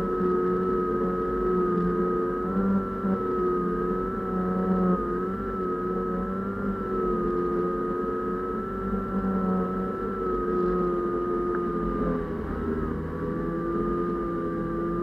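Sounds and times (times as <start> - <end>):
drone motor whine: 0.0 - 15.0.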